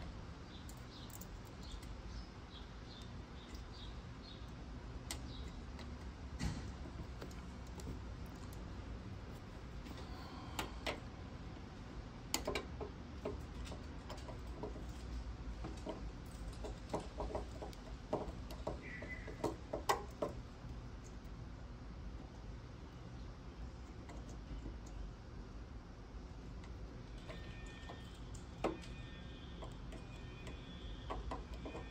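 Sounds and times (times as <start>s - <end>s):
low steady background hum: 0.0s - 31.9s
small metal clicks and ticks: 0.6s - 2.0s, 2.9s - 6.2s, 12.3s - 20.4s, 29.6s - 31.9s.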